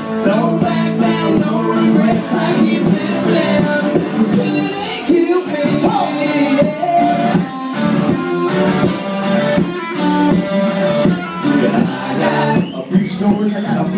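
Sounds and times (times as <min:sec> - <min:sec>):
country band playing: 0:00.0 - 0:13.9.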